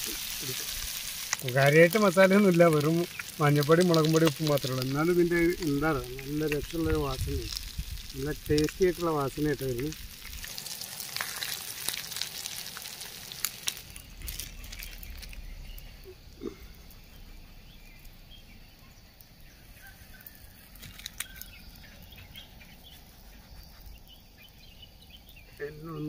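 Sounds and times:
fish sizzling in a pan: 0:00.0 - 0:25.4
faint bird chirps: 0:13.8 - 0:26.0.

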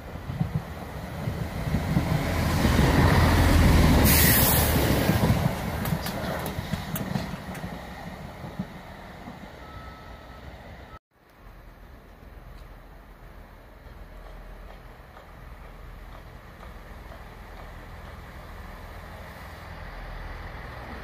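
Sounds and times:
diesel train passing: 0:00.0 - 0:21.0
rush of air: 0:03.7 - 0:05.5.

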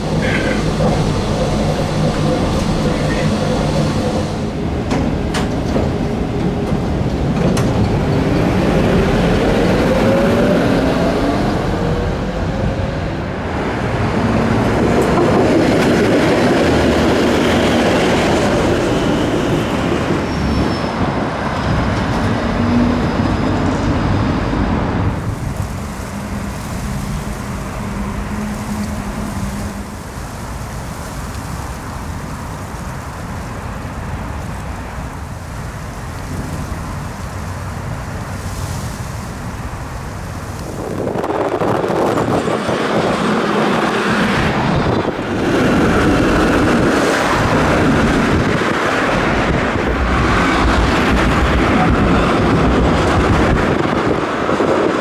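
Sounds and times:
tram motor whine: 0:00.0 - 0:25.2
tram wheels on rails: 0:00.0 - 0:55.0.

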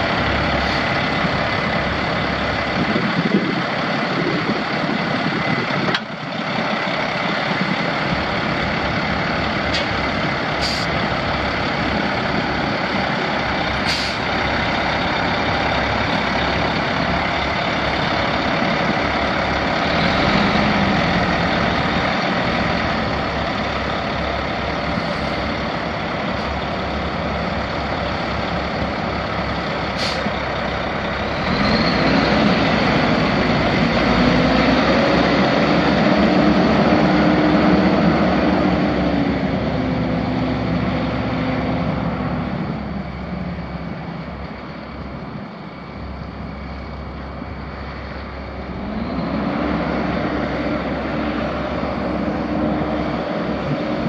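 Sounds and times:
diesel truck engine running: 0:00.0 - 0:54.0
short high hisses: 0:10.6 - 0:10.9, 0:13.8 - 0:14.3.

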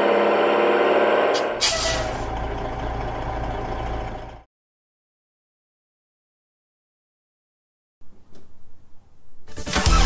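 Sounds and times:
truck engine rumbling: 0:00.0 - 0:04.5
air brakes hissing: 0:01.4 - 0:02.3.

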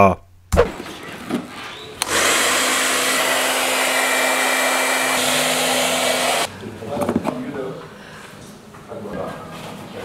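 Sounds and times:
hair dryer blowing: 0:02.0 - 0:06.5.

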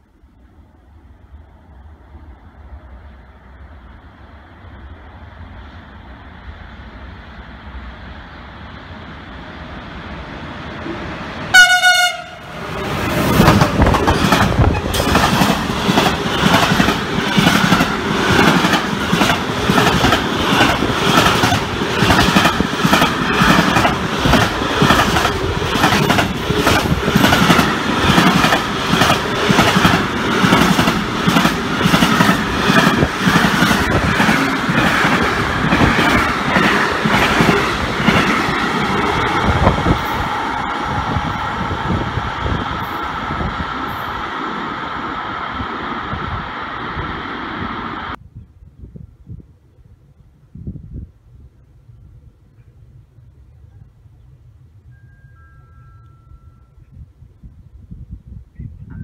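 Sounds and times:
train rumbling past: 0:00.0 - 0:59.0
train horn blast: 0:11.5 - 0:12.6.

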